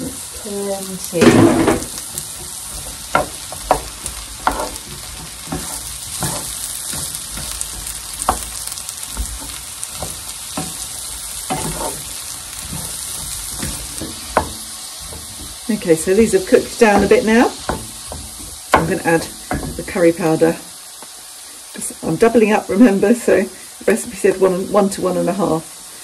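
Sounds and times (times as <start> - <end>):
vegetables sizzling in a pan: 0.0 - 26.0
wooden spoon scraping a pan: 1.1 - 20.6.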